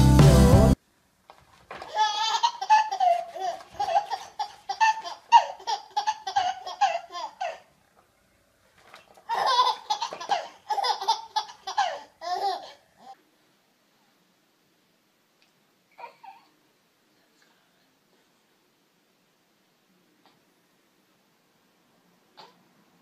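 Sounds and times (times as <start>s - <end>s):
baby laughing: 1.9s - 7.7s, 9.3s - 13.2s.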